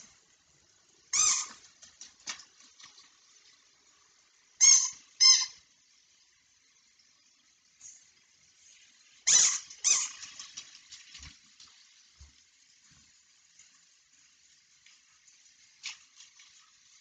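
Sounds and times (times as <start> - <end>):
squeaky toy squeaks: 1.1 - 1.6, 4.6 - 5.6, 9.3 - 10.2.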